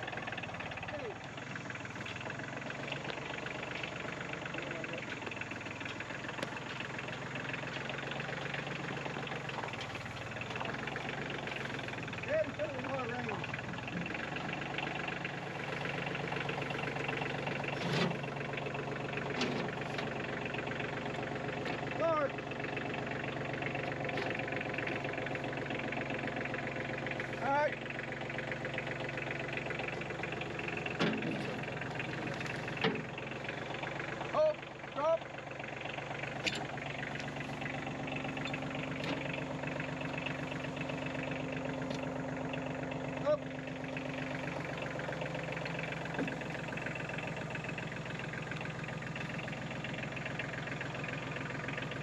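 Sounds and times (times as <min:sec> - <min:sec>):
tractor engine idling: 0:00.0 - 0:52.0
metallic clanks: 0:30.7 - 0:33.2.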